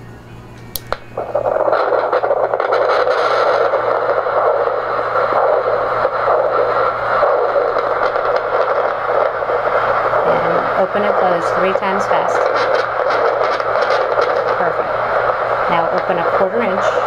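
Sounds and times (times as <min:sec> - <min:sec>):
ultrasound probe hiss: 0:00.8 - 0:17.0.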